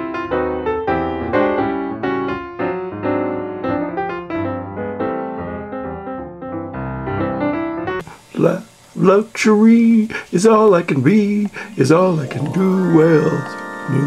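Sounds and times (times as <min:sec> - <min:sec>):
piano music: 0:00.0 - 0:08.0, 0:11.9 - 0:14.0.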